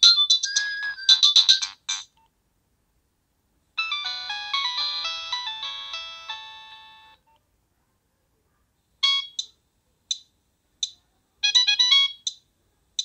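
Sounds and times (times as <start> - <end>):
synthesized ringtone melody: 0.0 - 2.0, 3.8 - 7.2, 11.4 - 12.4.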